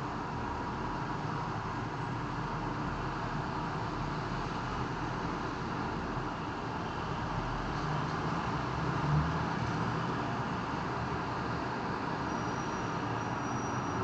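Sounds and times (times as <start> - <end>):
road traffic rumble: 0.0 - 14.0.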